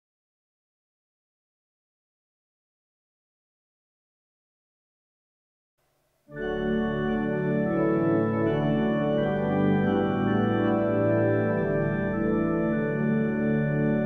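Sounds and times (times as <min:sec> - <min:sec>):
organ playing sustained chords: 0:06.3 - 0:14.0.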